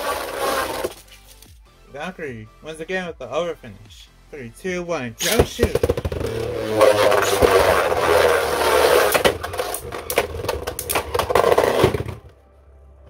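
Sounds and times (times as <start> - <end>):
spinning tops grinding in plastic stadium: 0.0 - 1.0, 5.2 - 12.2.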